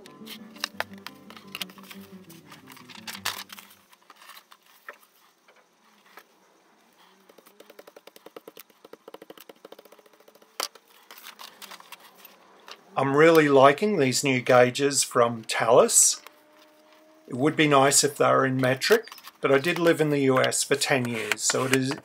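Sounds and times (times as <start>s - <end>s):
background music: 0.0s - 3.8s
boards and paper handled: 0.2s - 6.3s, 7.2s - 12.8s, 18.9s - 22.0s
clicks and taps: 7.3s - 10.8s.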